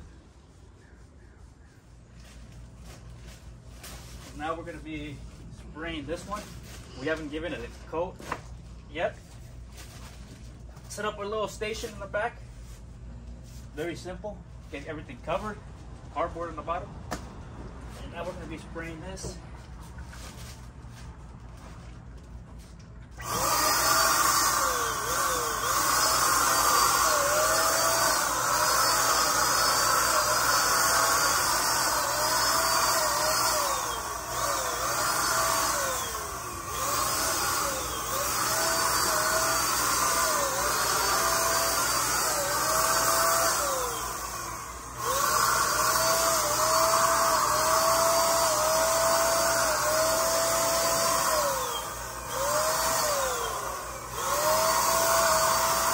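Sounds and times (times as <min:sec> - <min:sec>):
electric paint sprayer motor: 0:23.1 - 0:55.9.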